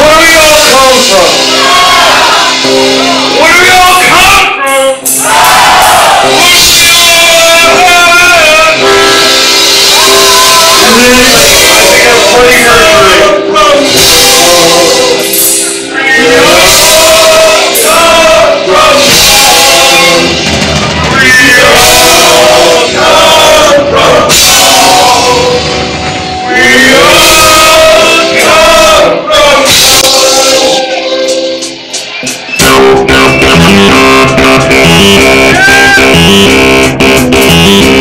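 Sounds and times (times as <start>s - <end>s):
man singing: 0.0s - 1.4s, 3.3s - 9.1s, 10.0s - 20.4s, 21.1s - 25.7s, 26.4s - 31.4s
rock band playing: 0.0s - 38.0s.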